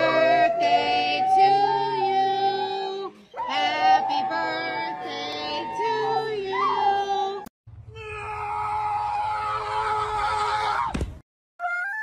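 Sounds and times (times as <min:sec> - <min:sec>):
dog howling: 0:00.0 - 0:07.4.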